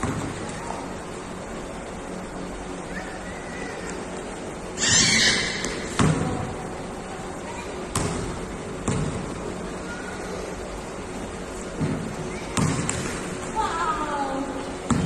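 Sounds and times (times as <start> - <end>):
basketball bouncing on concrete: 7.9 - 9.2, 12.6 - 13.0.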